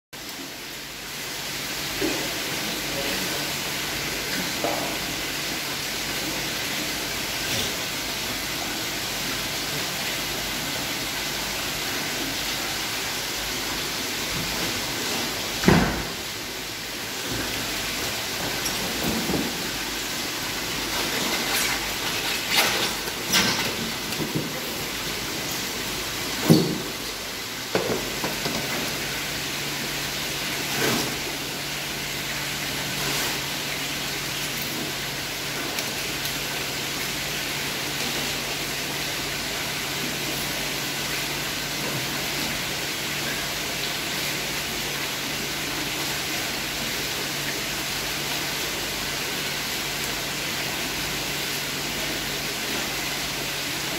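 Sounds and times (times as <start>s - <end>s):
water gushing from pipe: 0.2s - 53.9s
knocks and thump: 15.6s - 16.2s, 26.4s - 27.0s.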